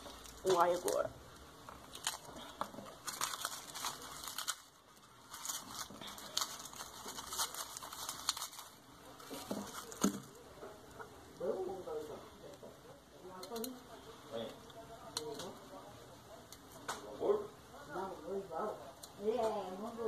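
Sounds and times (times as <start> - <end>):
garlic skins crinkling: 0.0 - 10.9.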